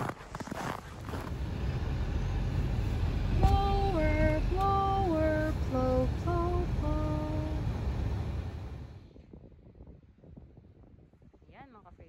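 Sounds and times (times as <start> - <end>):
car driving rumble inside cabin: 1.0 - 9.0
high singing voice melody: 3.2 - 7.9.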